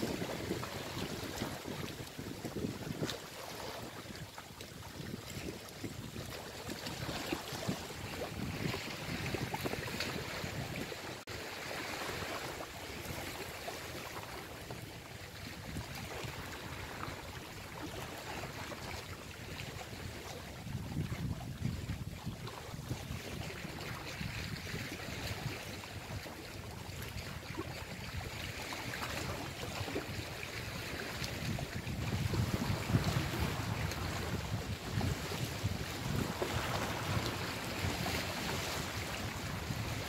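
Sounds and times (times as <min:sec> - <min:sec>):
sea waves washing against rocks: 0:00.0 - 0:04.0, 0:30.8 - 0:40.0
wind buffeting microphone: 0:00.0 - 0:11.2, 0:18.6 - 0:28.4, 0:29.0 - 0:40.0.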